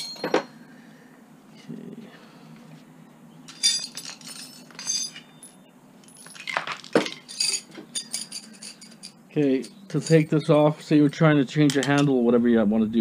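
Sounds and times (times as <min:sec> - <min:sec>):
metal hand tools clinking: 0:03.5 - 0:12.1.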